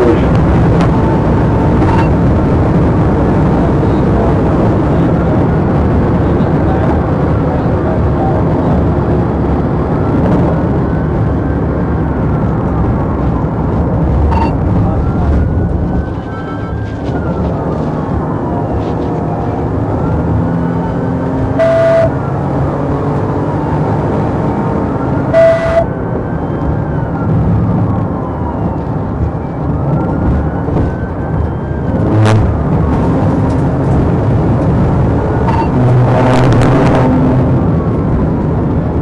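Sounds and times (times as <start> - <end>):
siren wailing: 0.0 - 2.6, 14.2 - 38.7
car engine and road rumble: 0.0 - 39.0
short siren blasts: 19.9 - 22.5, 24.9 - 33.3, 35.2 - 37.9.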